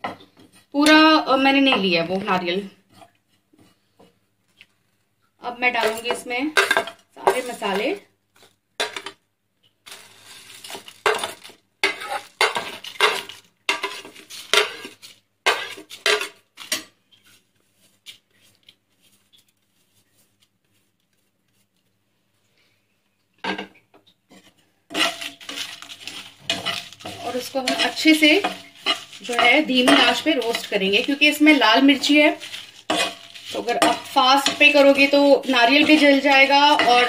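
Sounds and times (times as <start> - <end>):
steel spoon scraping a plate: 24.3 - 37.0.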